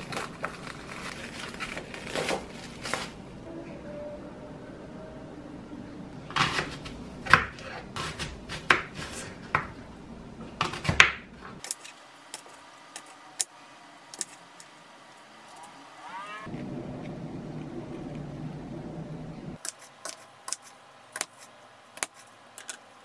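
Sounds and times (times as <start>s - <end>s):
knife cutting apple on board: 6.3s - 9.8s.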